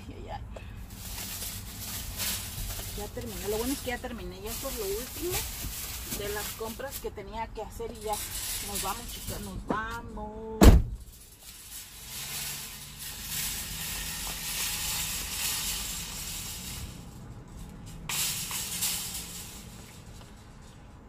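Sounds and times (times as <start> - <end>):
shopping cart wheels rattling: 0.8 - 10.2, 11.0 - 21.0
shopping cart clanking: 0.9 - 10.1, 11.0 - 21.0.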